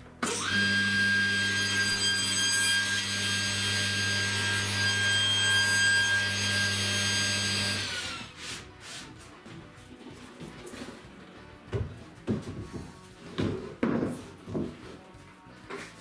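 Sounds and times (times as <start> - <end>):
table saw motor whining: 0.2 - 8.4.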